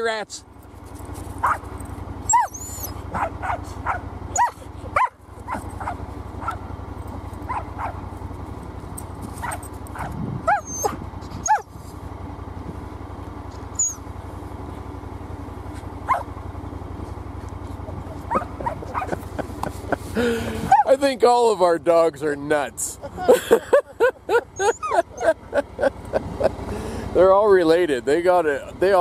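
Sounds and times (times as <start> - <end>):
engine idling: 0.0 - 29.0
dog barking: 1.4 - 1.6, 2.3 - 6.7, 7.5 - 8.0, 9.4 - 11.7, 16.1 - 16.3, 18.3 - 19.2, 20.7 - 20.9.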